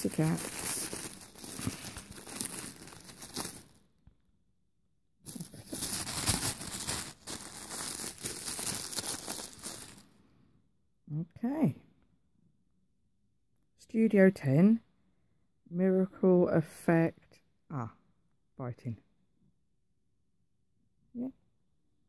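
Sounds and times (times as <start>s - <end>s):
paper crinkling and tearing: 0.0s - 3.8s, 5.3s - 10.0s.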